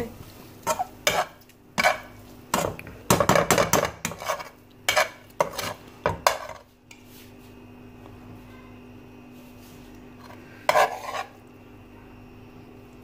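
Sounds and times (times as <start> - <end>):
metal spoon scraping metal pan: 0.6 - 2.7, 3.4 - 6.6, 10.2 - 11.4.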